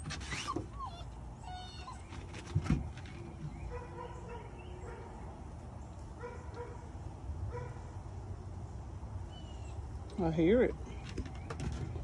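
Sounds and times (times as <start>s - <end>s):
distant dog barking: 3.6s - 5.2s, 6.2s - 6.9s, 7.5s - 7.9s.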